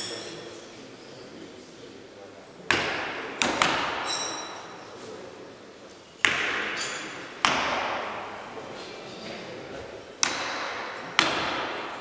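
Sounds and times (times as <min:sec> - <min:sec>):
metallic ring of steel blade: 0:00.0 - 0:00.5, 0:04.0 - 0:04.8
knives striking wooden targets: 0:02.7 - 0:04.8, 0:06.2 - 0:08.3, 0:10.2 - 0:12.0.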